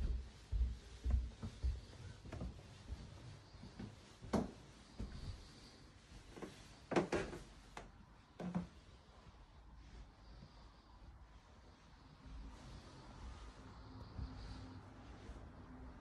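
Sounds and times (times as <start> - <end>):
footsteps on carpet: 0.0 - 6.8, 8.6 - 16.0.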